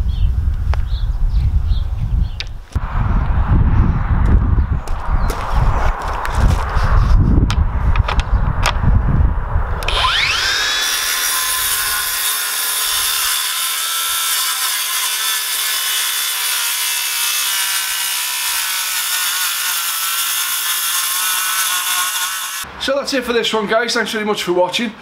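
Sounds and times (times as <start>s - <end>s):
track saw whining: 9.8s - 22.6s.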